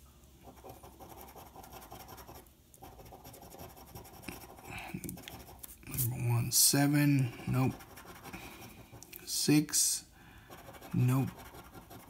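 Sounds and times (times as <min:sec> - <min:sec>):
coin scraping scratch card: 0:10.5 - 0:12.0.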